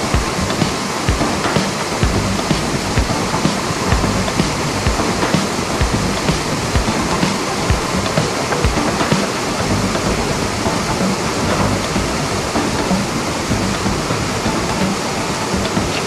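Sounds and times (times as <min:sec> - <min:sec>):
steady rushing noise: 0:00.0 - 0:16.0
engine low hum: 0:09.6 - 0:14.9.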